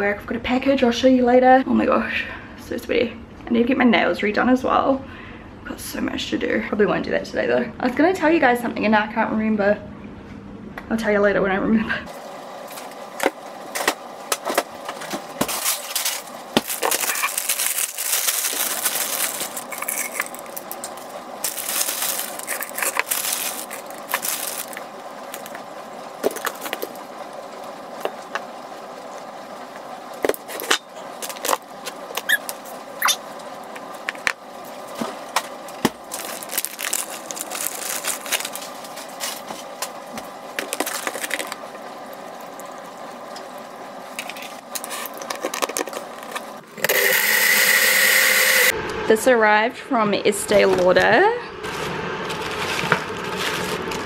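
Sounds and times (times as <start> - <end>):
faint steady hum: 0.0 - 54.0
rustling: 13.8 - 27.0, 34.9 - 40.0, 51.6 - 54.0.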